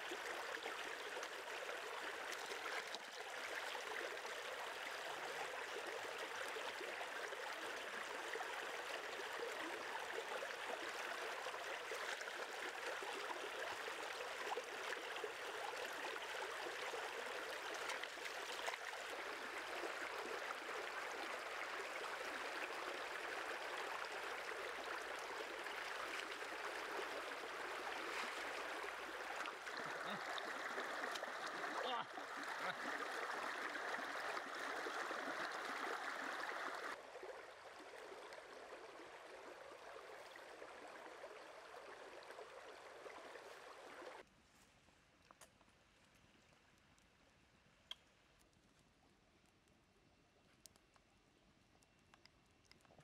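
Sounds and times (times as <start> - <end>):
stream water running: 0.0 - 44.3
water splashing: 14.4 - 37.0.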